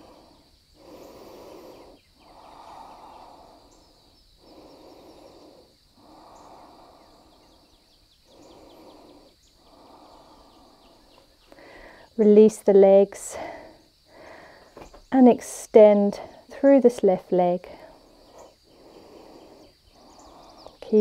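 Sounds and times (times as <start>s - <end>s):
person breathing through nose: 0.0s - 12.2s, 13.4s - 14.8s, 17.8s - 20.8s.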